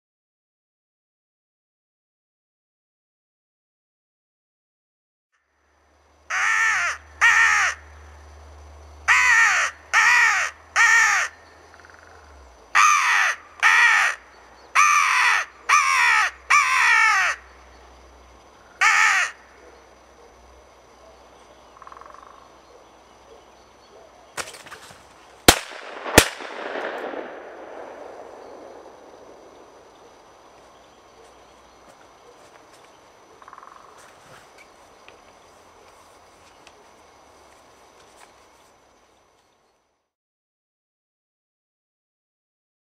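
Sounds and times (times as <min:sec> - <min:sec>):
crow cawing: 0:06.3 - 0:08.1, 0:09.1 - 0:17.5, 0:18.7 - 0:19.6
rustling: 0:24.4 - 0:25.5
sharp loud cracks: 0:24.4 - 0:29.9.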